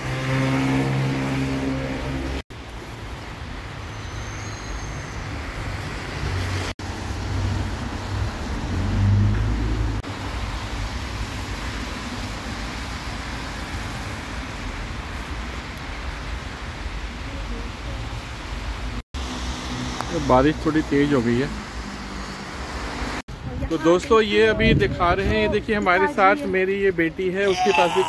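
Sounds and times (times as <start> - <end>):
vehicle passing loudly: 0.0 - 2.4, 5.8 - 10.0
car engines: 0.0 - 24.2
tyres hissing on wet road: 2.3 - 23.2.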